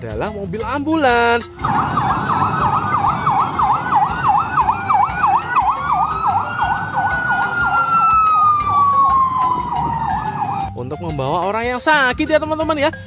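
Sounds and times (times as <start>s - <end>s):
low street traffic: 0.9s - 10.8s
ambulance siren fast yelp: 1.6s - 10.7s
slower siren tone: 1.6s - 10.7s.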